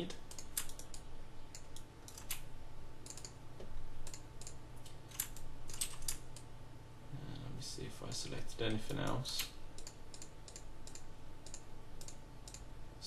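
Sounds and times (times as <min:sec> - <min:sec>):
steady low hum: 0:00.0 - 0:13.0
keyboard keys clicking: 0:00.3 - 0:02.4, 0:04.0 - 0:06.2.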